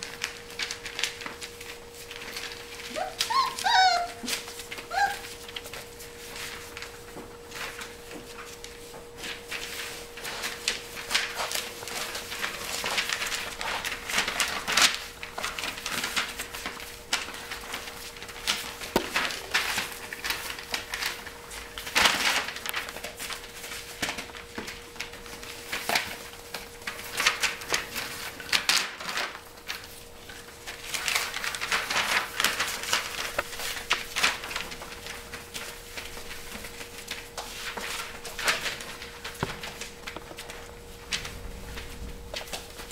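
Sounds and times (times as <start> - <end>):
paper crinkling: 0.0 - 42.9
puppy paws pattering: 0.0 - 42.9.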